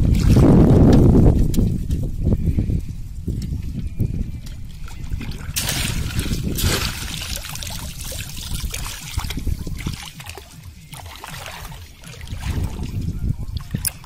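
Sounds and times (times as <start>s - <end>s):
wading steps through water: 0.0s - 2.0s, 4.4s - 14.0s
water splashing and running off: 4.8s - 14.0s.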